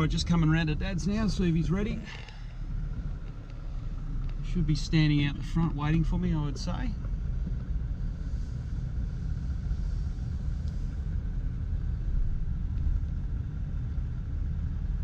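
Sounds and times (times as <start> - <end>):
car engine and tyres rumbling: 0.0 - 15.0.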